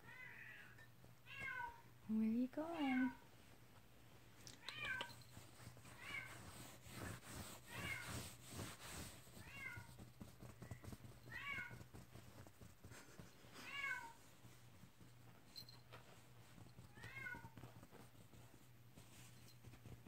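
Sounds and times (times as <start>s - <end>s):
fabric rustling: 5.1s - 13.3s.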